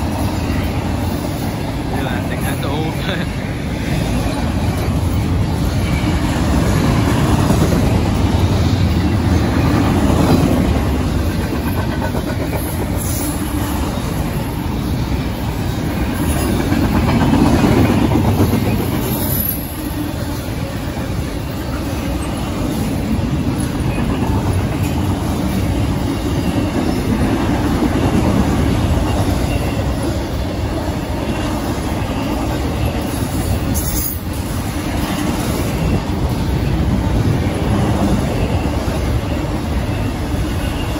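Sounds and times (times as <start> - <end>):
freight train rolling past: 0.0 - 40.9.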